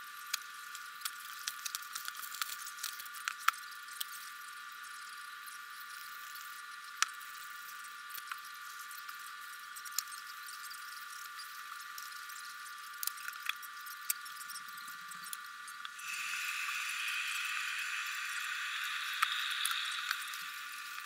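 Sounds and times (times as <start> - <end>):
electric kettle boiling hiss: 0.0 - 21.0.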